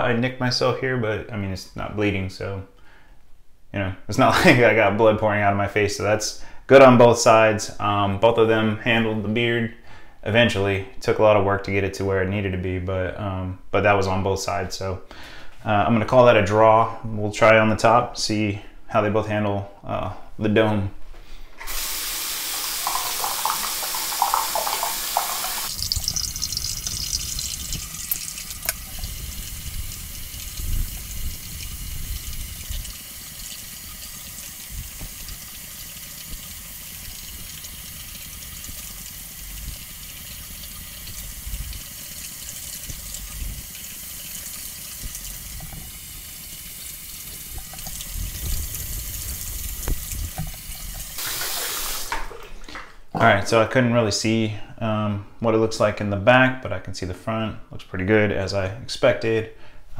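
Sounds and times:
faucet water running into sink: 0:21.6 - 0:52.7.

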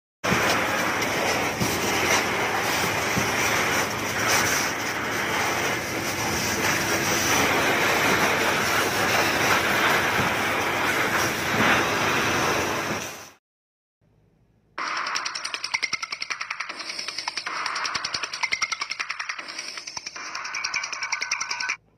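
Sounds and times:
fire hose water spraying: 0:00.2 - 0:13.4.

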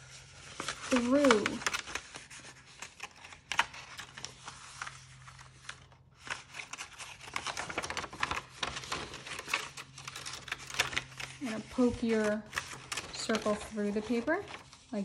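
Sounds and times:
paper rustling and crinkling: 0:00.0 - 0:15.0.

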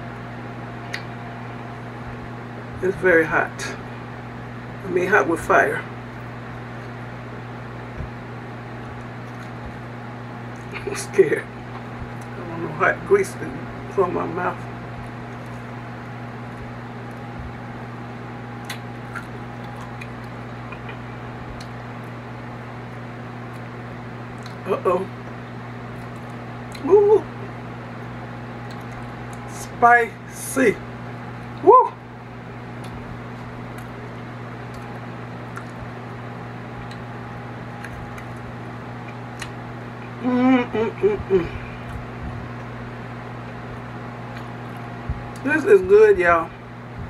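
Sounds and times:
electric fan humming: 0:00.0 - 0:47.0
crunchy chewing: 0:08.8 - 0:09.8, 0:18.6 - 0:24.6, 0:25.2 - 0:26.8, 0:28.6 - 0:29.5, 0:32.8 - 0:40.2.

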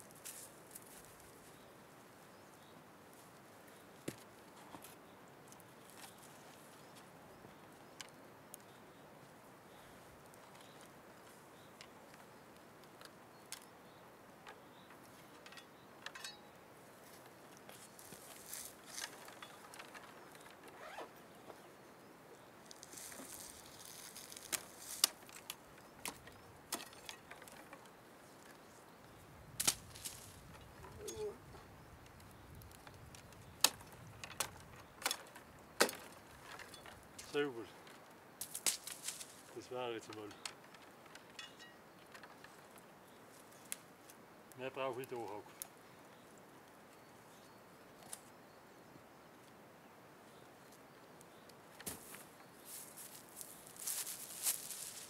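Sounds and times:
branches rustling: 0:00.0 - 0:13.7, 0:14.5 - 0:21.8, 0:22.4 - 0:48.3, 0:50.3 - 0:55.0
twigs snapping: 0:22.6 - 0:27.8, 0:29.6 - 0:31.2, 0:32.0 - 0:37.3, 0:38.4 - 0:41.6
boots knocking on tree trunk: 0:51.8 - 0:52.2.

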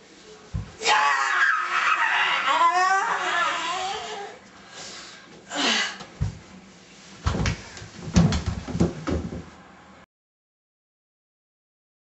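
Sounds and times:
dull thumps and knocks: 0:07.2 - 0:09.5.

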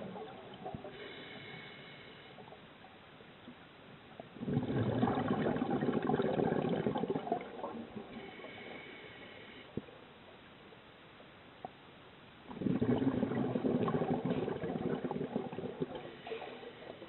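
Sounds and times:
air bubbles gurgling underwater: 0:04.4 - 0:08.6, 0:12.5 - 0:17.0.

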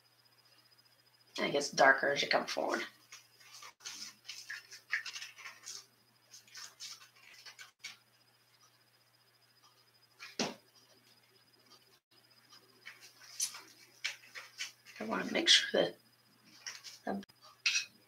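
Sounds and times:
paintbrush scrubbing on canvas: 0:03.4 - 0:08.0.

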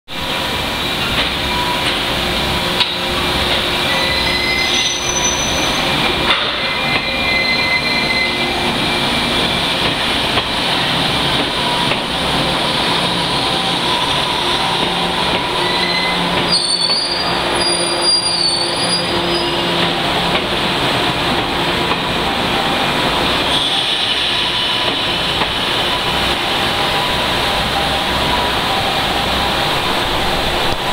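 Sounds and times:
electric train running: 0:00.2 - 0:30.9
high-pitched wheel squeals: 0:03.9 - 0:05.9, 0:06.6 - 0:08.7, 0:15.6 - 0:19.8.

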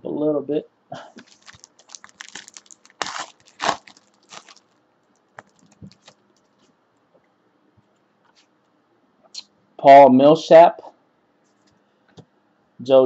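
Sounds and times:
wrapper and cards rustling: 0:01.2 - 0:06.6.

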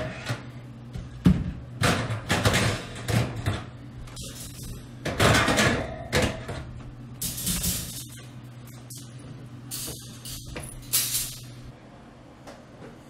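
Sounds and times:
metal oven racks scraping and clanking: 0:00.0 - 0:00.6.

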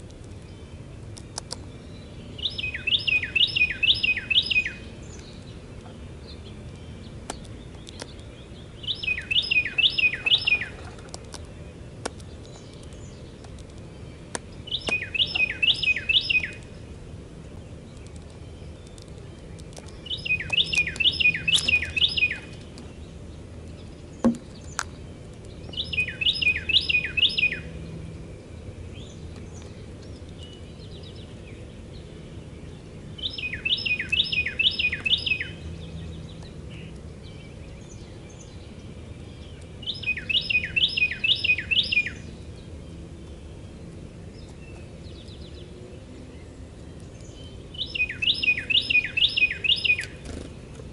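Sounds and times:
wren singing rolling phrase: 0:02.3 - 0:05.0, 0:08.4 - 0:10.8, 0:14.6 - 0:16.7, 0:20.0 - 0:23.1, 0:25.7 - 0:27.8, 0:33.2 - 0:38.7, 0:39.3 - 0:46.5, 0:47.2 - 0:50.2.

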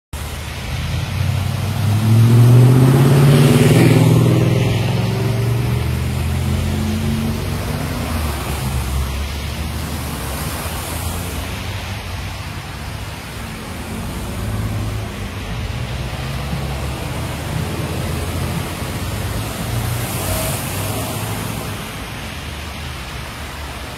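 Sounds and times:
traffic noise: 0:00.1 - 0:23.9
tyres hissing through water: 0:00.2 - 0:23.9
vehicle engine passing: 0:00.7 - 0:11.8.

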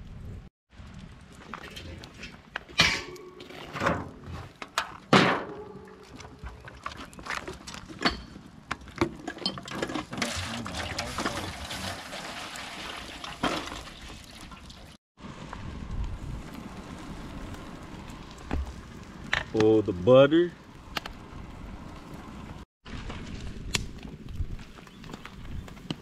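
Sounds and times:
water pouring into foil pan: 0:10.0 - 0:14.9.

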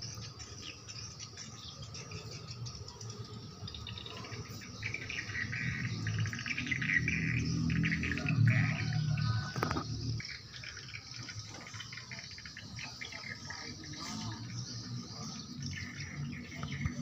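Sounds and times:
dense pulsing chirping: 0:00.0 - 0:17.0.

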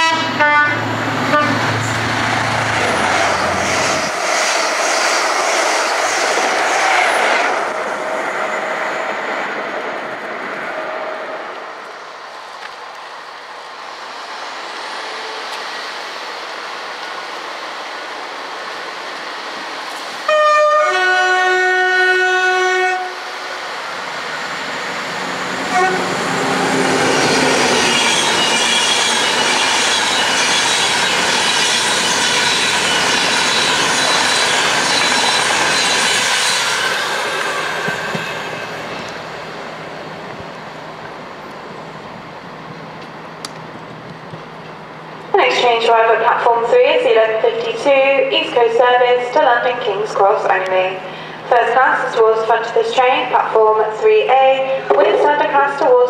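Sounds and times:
two-note train horn: 0:00.0 - 0:01.7, 0:20.3 - 0:23.3, 0:25.7 - 0:26.1
train passing at speed: 0:00.0 - 0:56.0.

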